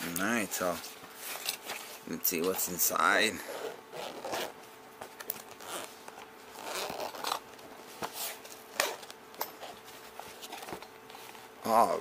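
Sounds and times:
zipper rasping open: 3.4s - 4.6s, 5.4s - 5.9s, 6.5s - 7.5s.

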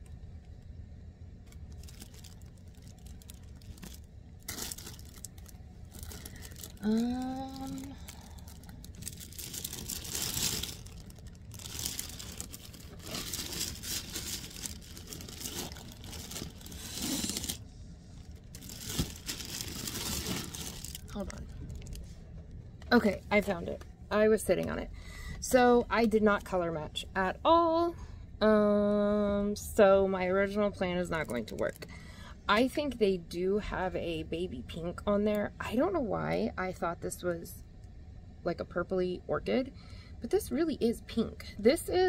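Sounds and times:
packaging and yarn rustling: 1.5s - 22.1s.

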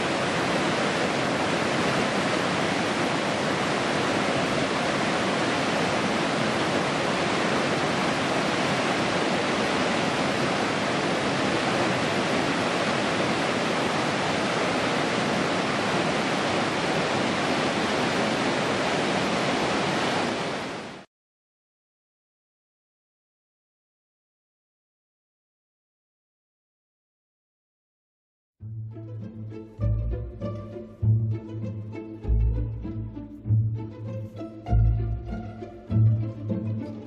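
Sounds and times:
waterfall rushing over rocks: 0.0s - 21.1s.

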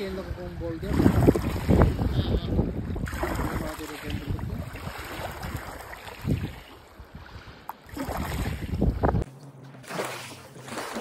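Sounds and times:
wind buffeting microphone: 0.0s - 9.3s
small waves lapping on pebbles: 3.1s - 8.7s.

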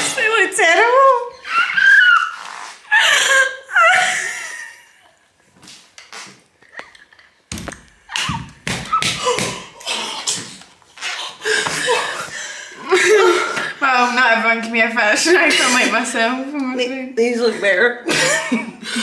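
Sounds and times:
woman laughing: 2.9s - 5.2s, 11.4s - 13.7s, 18.0s - 19.0s.

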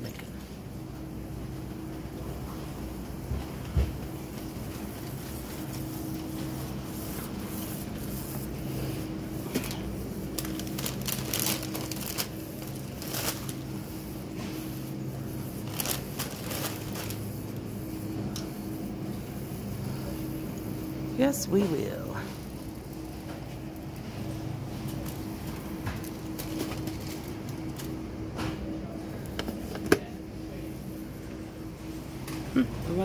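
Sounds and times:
low store hum: 0.0s - 33.0s
shopping cart rattling: 10.4s - 13.6s, 15.6s - 17.2s.

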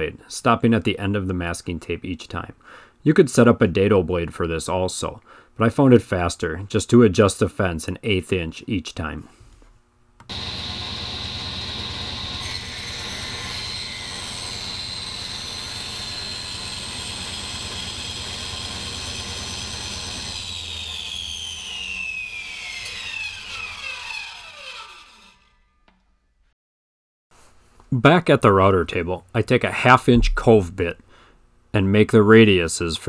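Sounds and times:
table saw whining: 10.3s - 26.2s.

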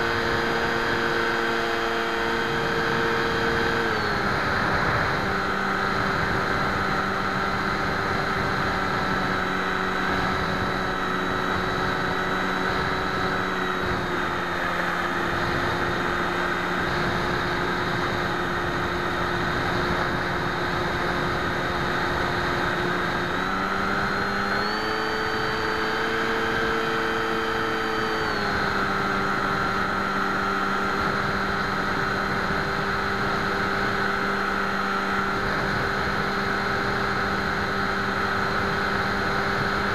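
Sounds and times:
electric motor and propeller droning: 0.0s - 39.9s.

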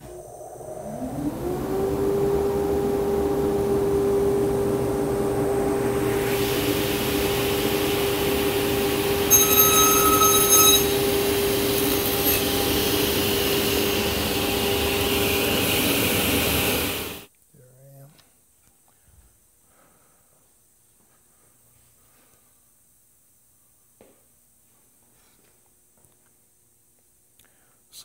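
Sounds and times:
table saw motor humming: 0.0s - 17.3s
saw blade cutting wood: 9.3s - 13.1s.

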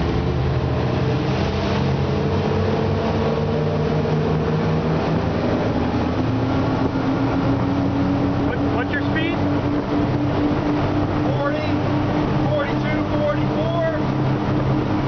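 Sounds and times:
outboard engines accelerating: 0.0s - 15.0s.

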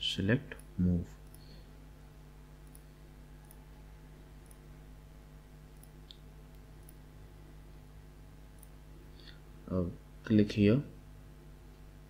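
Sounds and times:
low steady hum: 0.0s - 12.0s
computer mouse clicks: 2.6s - 3.6s, 4.4s - 4.7s, 5.7s - 7.0s.

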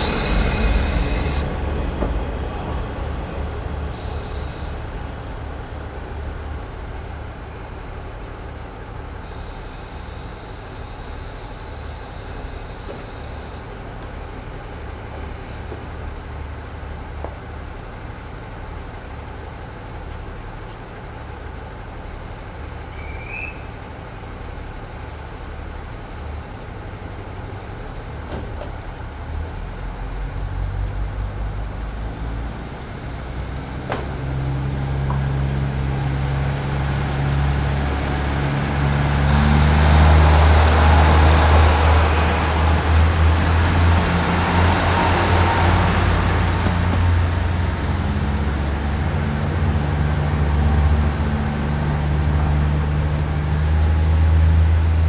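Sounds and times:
faint high squeal: 0.0s - 1.5s, 3.9s - 5.5s, 7.9s - 13.7s, 22.9s - 23.7s
diesel railcar engine idling: 0.0s - 30.3s
diesel railcar engine approaching: 0.0s - 55.0s.

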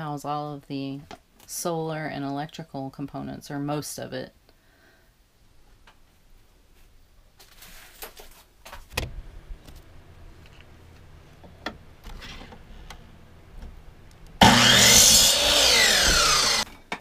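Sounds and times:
miter saw whining and cutting wood: 14.4s - 16.7s.

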